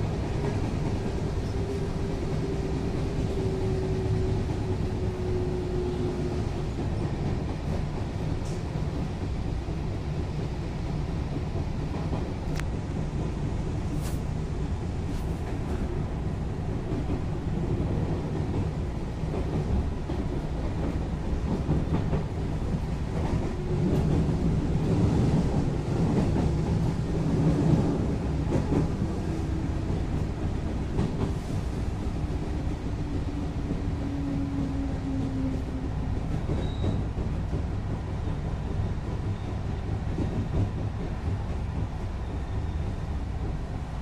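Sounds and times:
train wheels rumbling: 0.0s - 44.0s.

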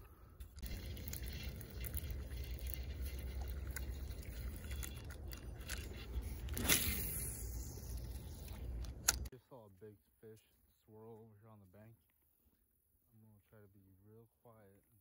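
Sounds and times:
steady low rumble: 0.1s - 9.3s.

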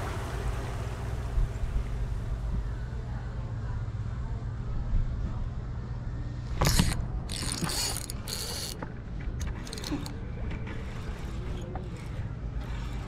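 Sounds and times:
low rumble: 0.0s - 7.3s
fishing reel ratcheting: 6.6s - 13.0s.

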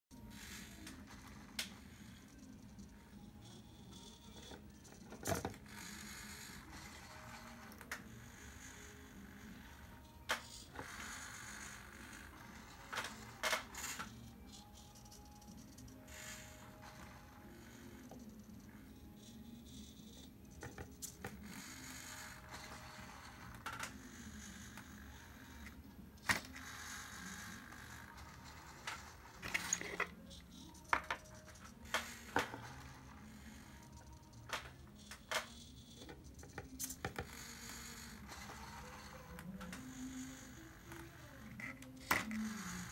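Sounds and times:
servo motors whirring: 36.7s - 42.9s.

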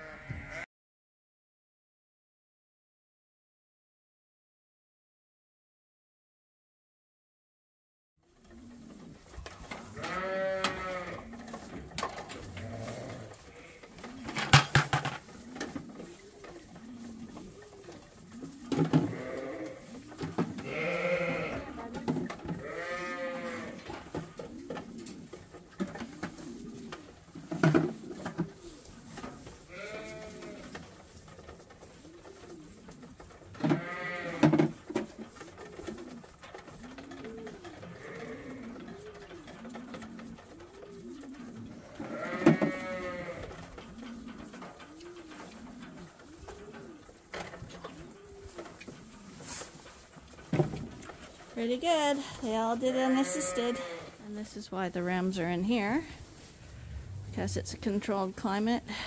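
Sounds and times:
sheep bleating: 0.0s - 0.7s, 10.0s - 11.3s, 19.0s - 19.8s, 20.6s - 21.8s, 22.6s - 23.8s, 29.7s - 30.6s, 33.6s - 34.5s, 42.0s - 43.5s, 52.8s - 54.2s
pigeons cooing: 8.3s - 59.0s.

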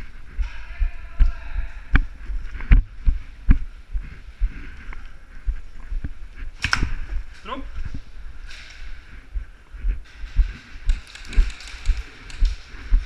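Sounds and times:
footsteps on concrete: 1.2s - 10.6s.

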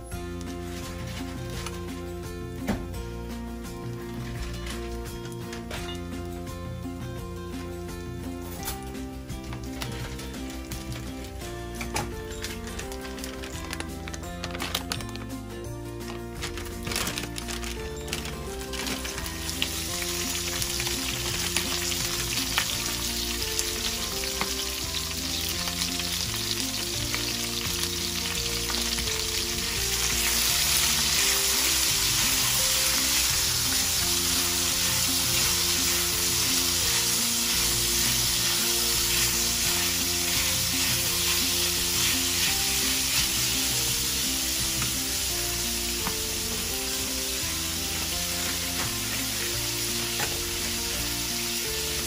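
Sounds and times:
beans sizzling in hot oil: 0.4s - 2.1s, 4.0s - 15.4s, 16.0s - 52.0s
tongs tossing in skillet: 30.1s - 50.8s.

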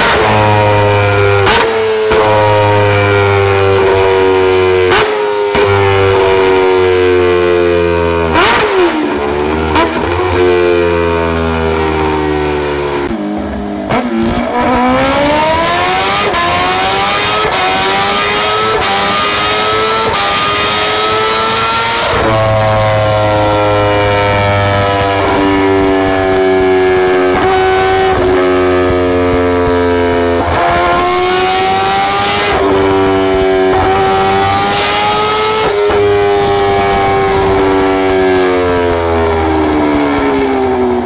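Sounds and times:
motorcycle engine revving: 0.0s - 41.0s.

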